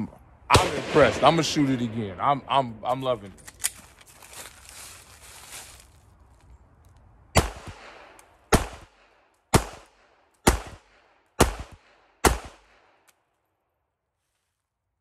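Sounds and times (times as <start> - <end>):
pistol shots: 0.5 - 1.8, 7.3 - 13.0.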